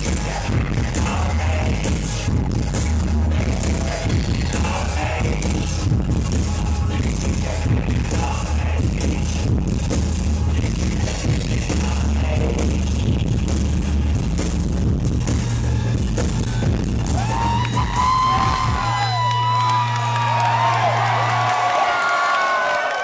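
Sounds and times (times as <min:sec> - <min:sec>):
heavy electronic beat: 0:00.0 - 0:20.2
crowd whooping and yelling: 0:17.0 - 0:23.0.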